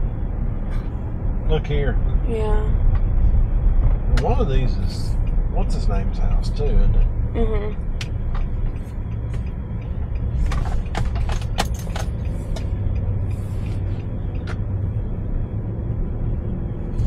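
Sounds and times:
engine and road rumble in cabin: 0.0s - 17.0s
sharp clicks and knocks: 7.9s - 13.1s.

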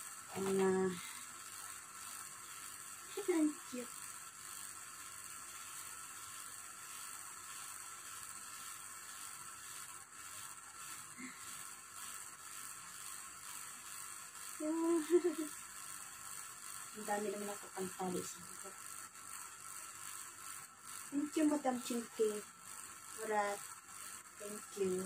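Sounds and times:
room tone hiss: 0.0s - 25.0s
woman's voice: 0.3s - 1.2s, 3.1s - 3.9s, 14.6s - 15.5s, 17.0s - 18.5s, 21.1s - 22.4s, 23.2s - 23.6s, 24.4s - 25.0s.

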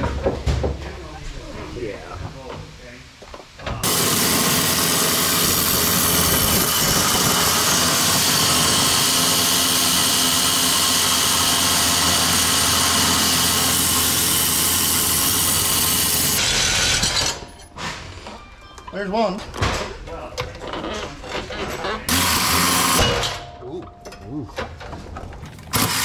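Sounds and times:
reciprocating saw cutting bolt: 22.1s - 23.3s, 25.7s - 26.0s.

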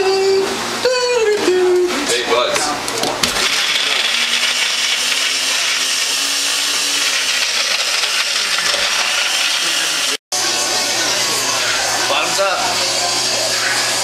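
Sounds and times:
blender blades chopping meat: 3.2s - 14.0s
blender running: 3.2s - 14.0s.

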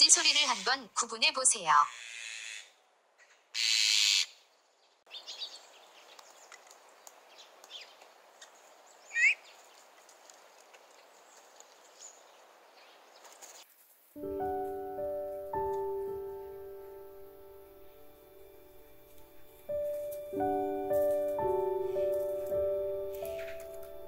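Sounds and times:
magpies calling: 0.0s - 0.9s, 1.7s - 4.4s, 7.6s - 9.8s.

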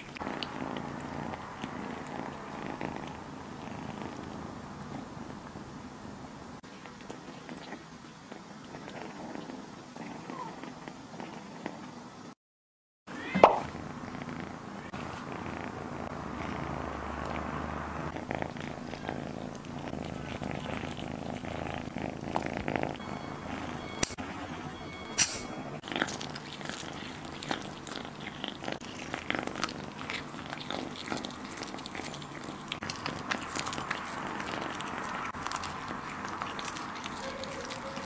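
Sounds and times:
kitten chewing and licking: 0.0s - 5.6s, 6.6s - 11.9s, 14.9s - 38.0s.

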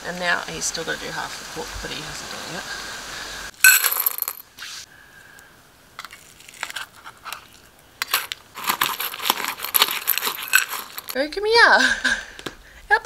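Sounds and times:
kibble crunching rattle in bowl: 6.5s - 11.2s
spoon scraping a tin: 8.1s - 11.2s.

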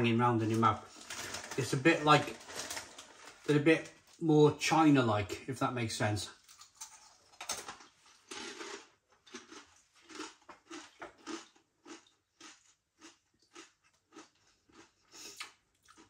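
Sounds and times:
crisps crunching while chewed: 0.4s - 3.6s, 6.4s - 16.0s.

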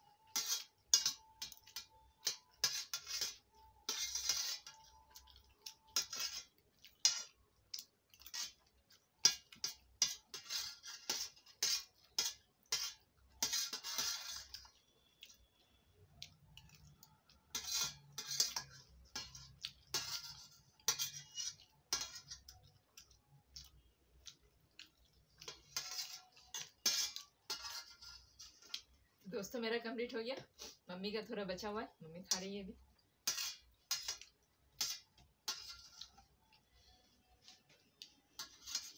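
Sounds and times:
cutlery clinking on metal plate: 0.2s - 8.6s, 9.2s - 14.6s, 17.5s - 22.7s, 25.4s - 28.9s, 33.2s - 36.2s, 38.3s - 38.9s.

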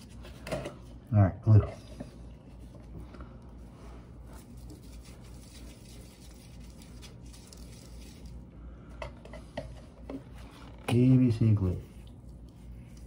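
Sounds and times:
brush rubbing inside pipe: 3.6s - 8.5s, 11.7s - 13.0s.

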